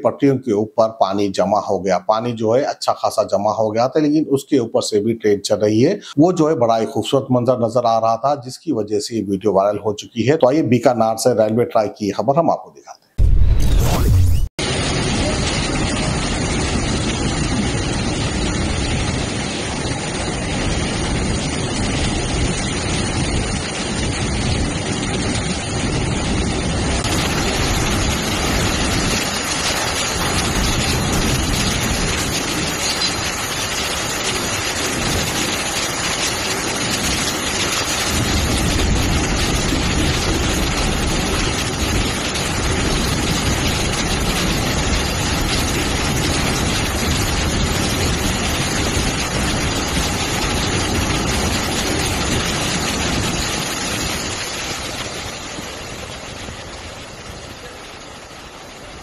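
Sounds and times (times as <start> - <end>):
water rushing from train wheels: 14.6 - 59.0.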